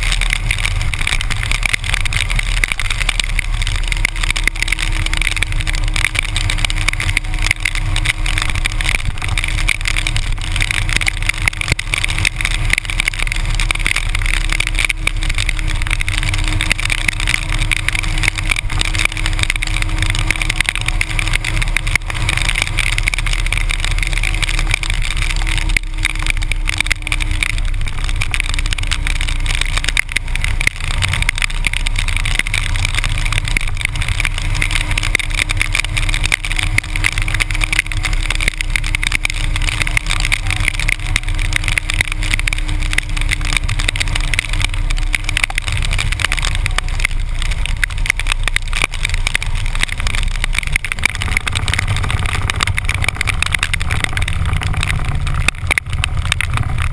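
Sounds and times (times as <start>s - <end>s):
motorcycle engine drone: 0.0s - 56.9s
wet road noise: 0.0s - 56.9s.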